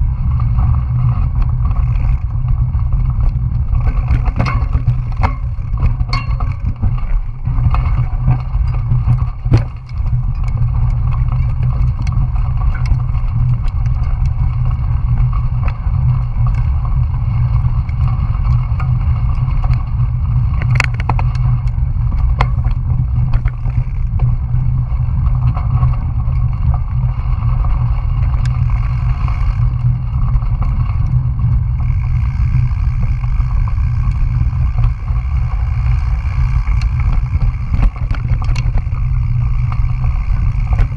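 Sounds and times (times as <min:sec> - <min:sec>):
bike clicking and rattling: 0:00.0 - 0:40.9
wind rumbling on microphone: 0:00.0 - 0:40.9.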